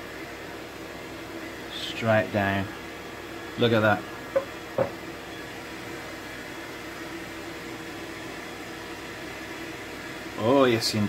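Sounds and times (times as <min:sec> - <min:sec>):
background hum with faint tones: 0:00.0 - 0:11.0
brief knock: 0:04.4 - 0:05.0.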